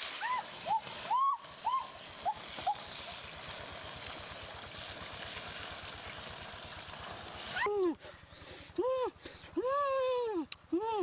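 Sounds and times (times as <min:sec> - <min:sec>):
stream running: 0:00.0 - 0:08.7.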